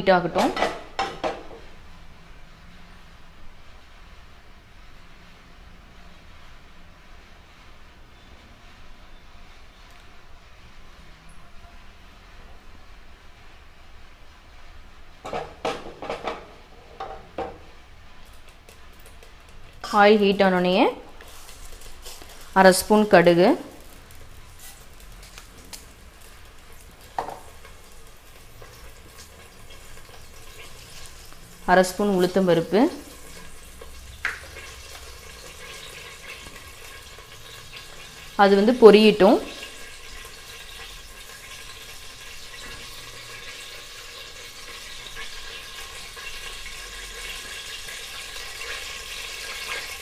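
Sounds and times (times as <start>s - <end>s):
seeds sizzling in hot oil: 18.2s - 50.0s.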